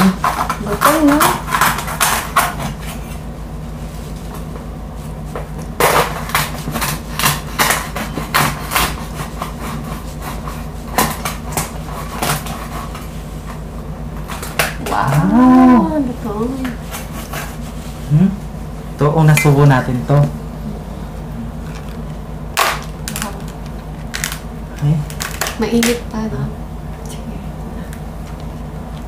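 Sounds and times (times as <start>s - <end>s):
low hum: 9.9s - 29.0s
person exclaiming: 14.8s - 16.4s.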